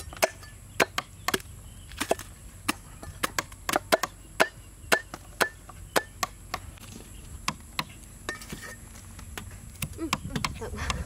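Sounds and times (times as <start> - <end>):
cleaver chopping on a board: 0.0 - 6.7.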